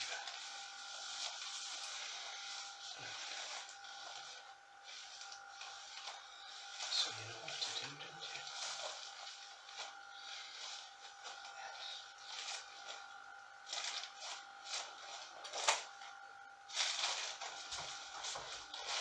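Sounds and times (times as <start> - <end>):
faint steady hum: 0.0 - 19.0
plastic raincoat crinkling: 16.7 - 19.0.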